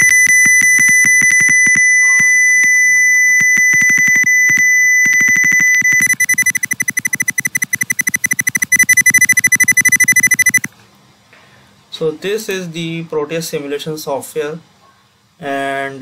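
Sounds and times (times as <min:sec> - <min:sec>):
sine test tone beep crackling: 0:00.0 - 0:10.7.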